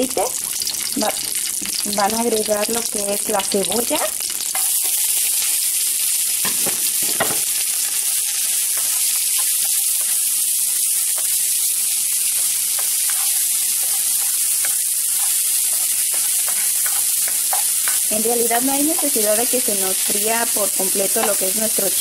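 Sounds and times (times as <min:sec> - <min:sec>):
onion sizzling in hot oil: 0:00.0 - 0:22.0
spatula scraping pan: 0:12.4 - 0:22.0.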